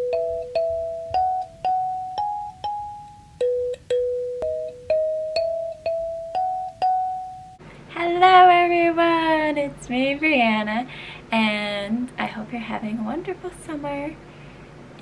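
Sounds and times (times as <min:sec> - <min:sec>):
keyboard melody: 0:00.0 - 0:07.6.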